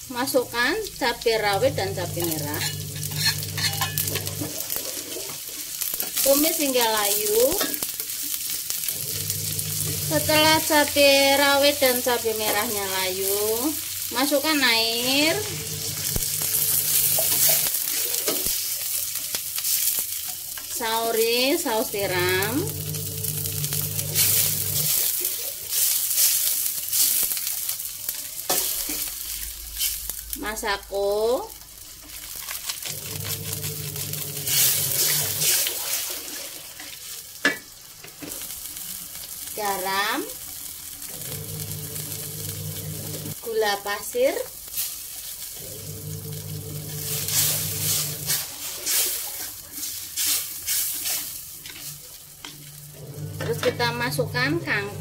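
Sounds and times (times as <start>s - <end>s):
vegetables sizzling in oil: 0.0s - 55.0s
spatula stirring in wok: 1.2s - 6.2s, 13.8s - 21.0s, 31.8s - 37.4s, 46.4s - 53.8s.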